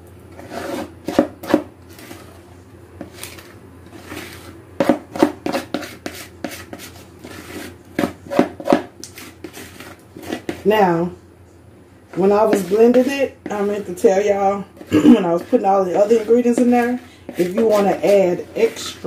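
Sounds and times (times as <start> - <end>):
spoon scraping a mixing bowl: 0.3 - 2.4, 3.0 - 10.9, 12.1 - 19.0.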